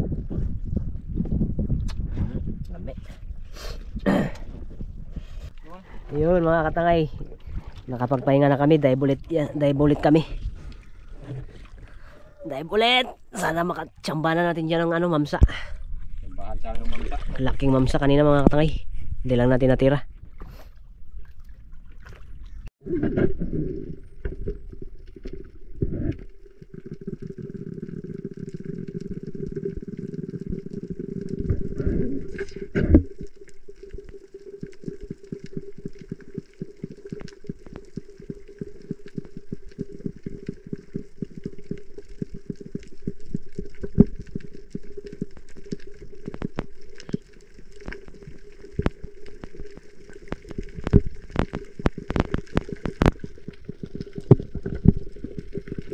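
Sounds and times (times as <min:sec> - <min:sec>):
water gurgling: 0:03.2 - 0:18.7, 0:21.1 - 0:55.9
water splashing: 0:05.6 - 0:18.4, 0:20.2 - 0:55.9
crackle of small clicks: 0:24.0 - 0:55.9.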